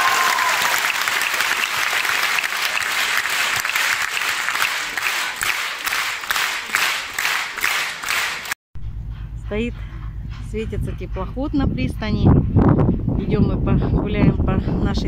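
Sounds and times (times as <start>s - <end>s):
audience applauding: 0.0s - 8.6s
rhythmic clapping in unison: 0.0s - 8.6s.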